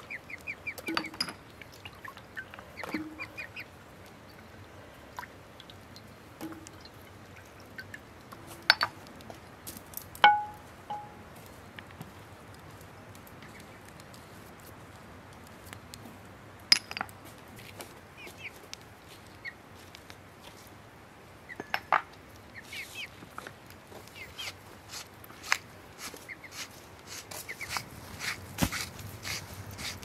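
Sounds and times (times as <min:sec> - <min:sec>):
bird chirps: 0:01.8 - 0:03.7.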